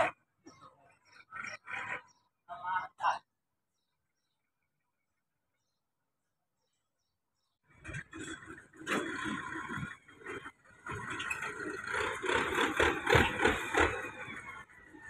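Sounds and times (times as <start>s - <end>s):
blade scraping soil and rubble: 7.7s - 14.5s
tractor engine running: 7.7s - 15.0s.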